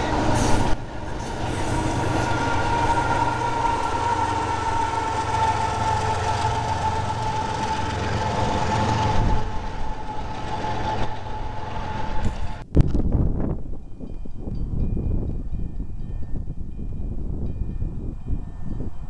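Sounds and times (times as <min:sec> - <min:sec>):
diesel locomotive rumble: 0:00.0 - 0:12.7
locomotive high whine: 0:00.0 - 0:12.8
outdoor noise: 0:00.0 - 0:19.0.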